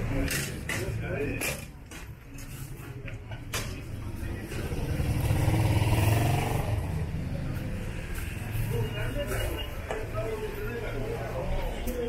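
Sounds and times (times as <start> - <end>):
vehicle engine passing by: 4.1 - 8.9.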